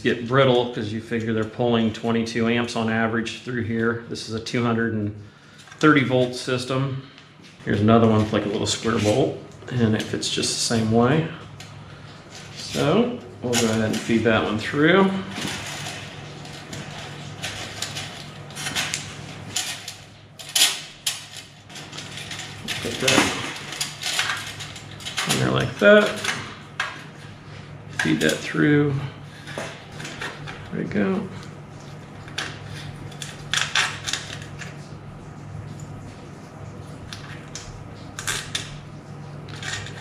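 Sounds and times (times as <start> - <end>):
steady low hum: 0.0 - 40.0
small metal parts clinking: 15.4 - 26.4
wire clicking and scraping on metal: 15.4 - 27.1.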